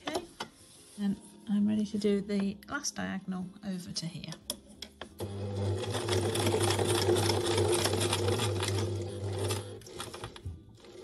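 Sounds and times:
sewing machine stitching: 5.2 - 11.0.

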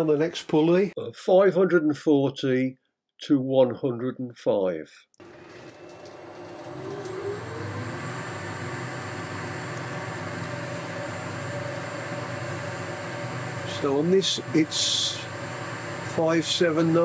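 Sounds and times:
thin high whine: 5.2 - 17.0
motor hum rising in pitch: 5.6 - 17.0.

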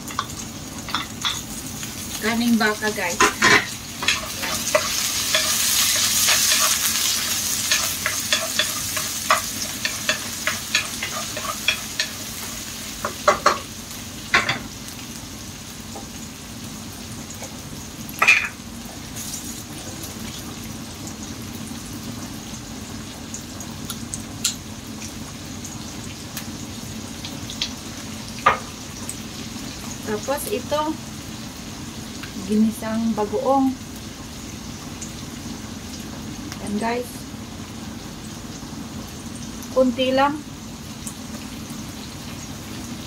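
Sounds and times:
meat sizzling in oil: 0.0 - 43.0
utensil clacking against pan: 7.7 - 12.2.

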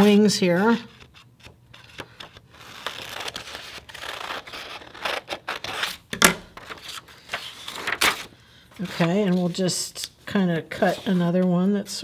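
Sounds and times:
paper rustling: 0.9 - 10.1
scissors snipping paper: 1.9 - 6.0.

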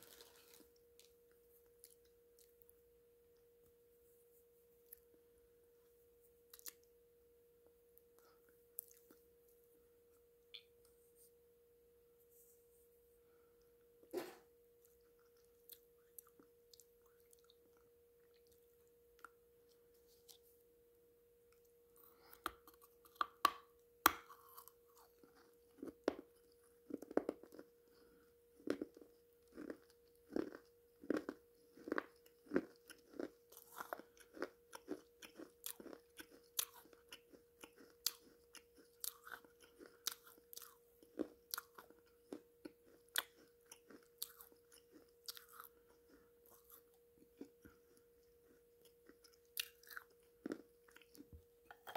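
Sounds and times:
biting and crunching clay pot: 0.0 - 1.2, 22.0 - 27.8, 28.6 - 51.9
faint steady hum: 0.0 - 51.9.

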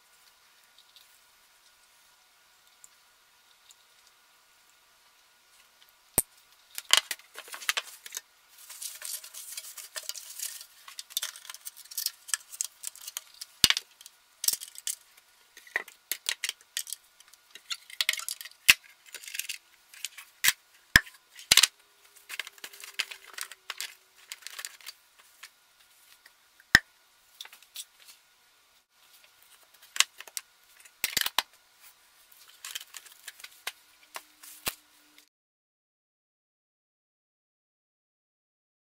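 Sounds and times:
rustling: 6.7 - 13.6
plastic parts clicking and clacking: 8.8 - 15.0, 15.6 - 25.5, 29.8 - 31.5, 32.4 - 34.2.

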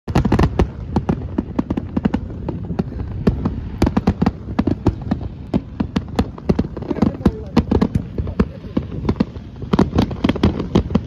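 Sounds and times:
fireworks bangs and pops: 0.1 - 11.0.

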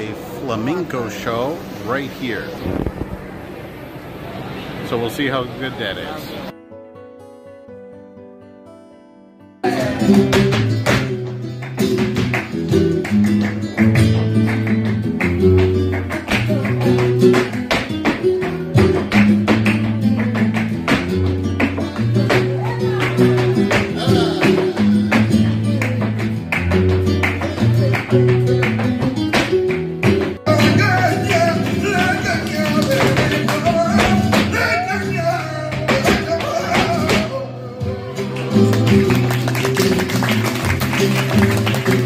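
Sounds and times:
spanish guitar: 0.0 - 42.0
rhythmic handclaps: 9.7 - 37.4, 38.1 - 42.0
dancer's footwork: 10.0 - 37.4.

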